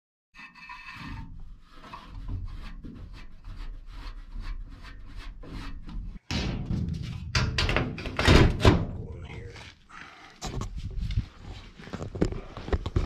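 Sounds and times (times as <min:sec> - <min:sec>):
light rubbing and small knocks: 0:00.4 - 0:08.2
metal panel knocking and scraping: 0:01.0 - 0:09.0.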